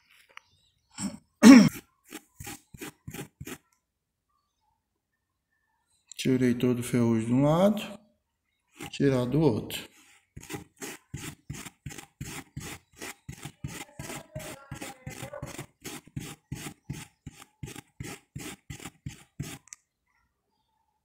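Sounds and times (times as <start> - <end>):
metal scraping on steel wool: 1.7 - 3.6, 8.8 - 19.7.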